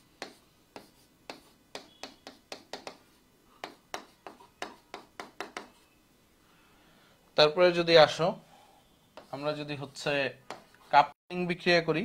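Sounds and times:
marker pen tapping on whiteboard: 0.2s - 5.8s, 10.4s - 10.8s.

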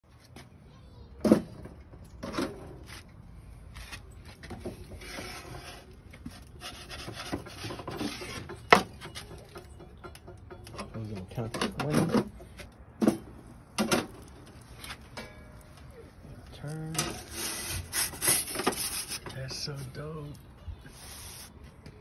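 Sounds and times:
pizza peel scraping oven: 4.7s - 9.5s, 16.6s - 19.9s.

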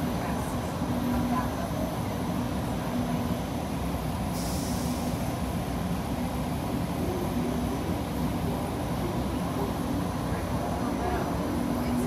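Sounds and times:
train rumble and hum: 0.0s - 12.0s
short hiss: 4.3s - 5.3s.

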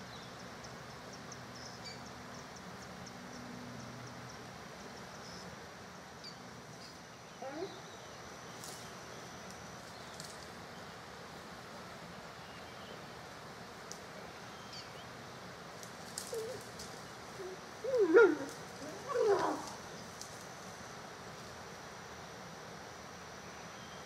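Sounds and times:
animal calling: 17.4s - 19.8s.

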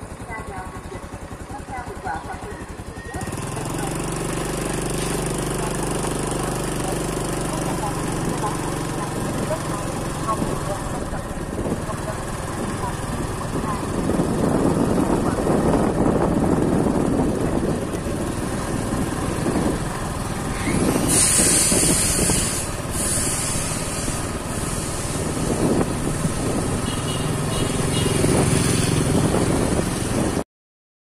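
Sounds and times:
motorbike road noise on wet street: 0.0s - 30.4s
wind rumble on microphone: 10.2s - 22.8s, 24.8s - 30.4s
loud hiss: 20.9s - 25.4s.

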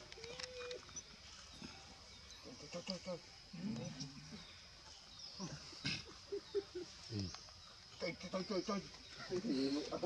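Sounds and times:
monkey grunt: 5.4s - 6.4s.

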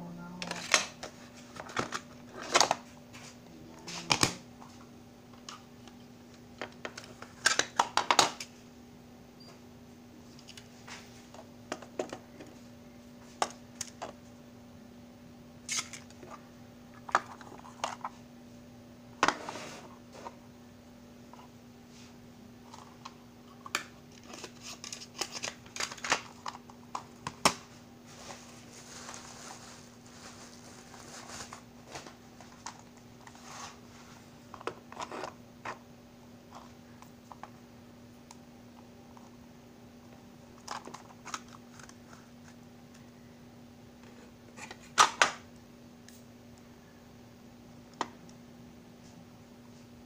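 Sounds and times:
faint low hum: 0.0s - 50.0s
rustling: 27.7s - 34.3s.

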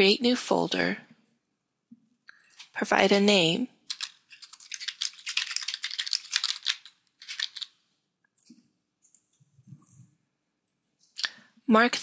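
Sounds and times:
fast typing on keyboard: 3.9s - 7.8s.

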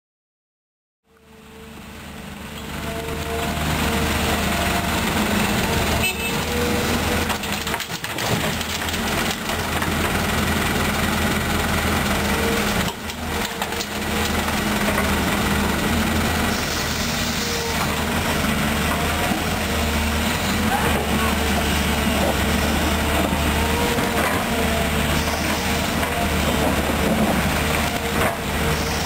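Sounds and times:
excavator diesel engine drone: 1.0s - 29.0s.

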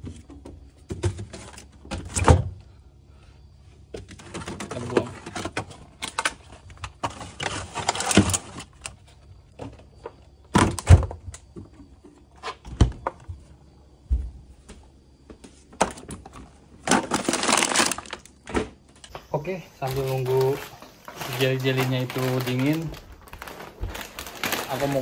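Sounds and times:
items knocking on fridge shelves: 0.0s - 2.6s, 9.5s - 19.3s, 19.9s - 25.0s
plastic bags rustling: 16.4s - 18.4s, 19.2s - 25.0s.

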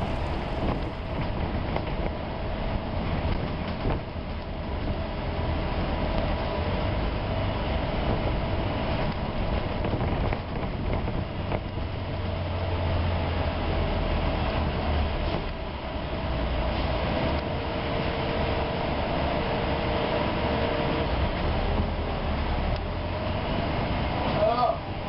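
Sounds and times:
faint constant whine: 0.0s - 12.5s
bus engine and road rumble: 0.0s - 25.0s.

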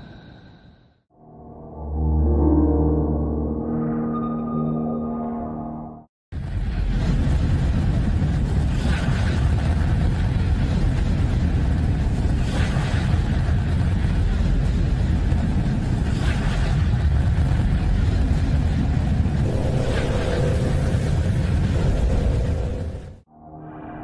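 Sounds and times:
deep rumble: 5.7s - 24.0s
hissing swell: 19.5s - 23.9s.

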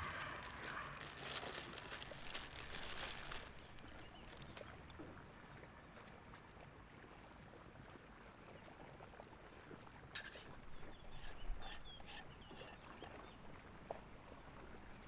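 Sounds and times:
wrapper crinkling: 0.0s - 4.6s
quiet outdoor background: 0.0s - 15.0s.

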